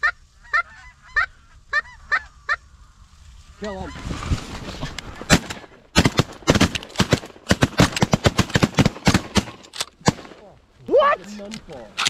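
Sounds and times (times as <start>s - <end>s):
shotgun fire: 5.3s - 10.4s.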